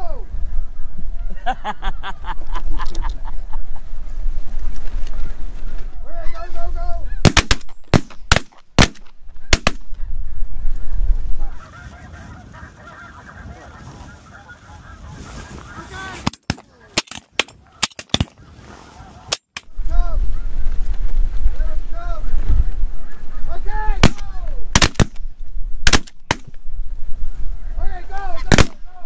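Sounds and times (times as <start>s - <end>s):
geese calling: 4.9s - 7.9s, 9.3s - 19.5s, 22.0s - 24.4s
shotgun blasts: 7.2s - 9.9s, 24.0s - 25.2s, 25.8s - 26.5s, 28.5s - 28.8s.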